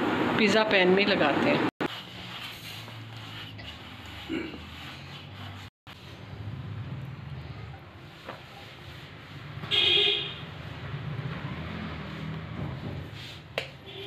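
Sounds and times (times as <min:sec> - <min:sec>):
vehicle horn toot: 0:09.7 - 0:10.4.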